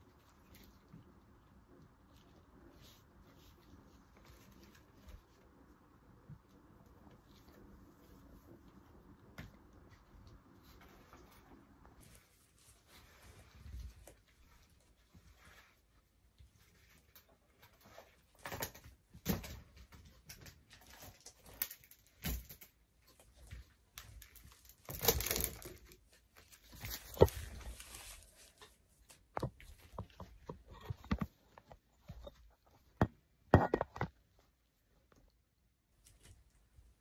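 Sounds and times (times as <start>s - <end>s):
clothes rustling: 6.4s - 18.4s, 19.8s - 33.5s
thumps and knocks: 29.3s - 34.2s.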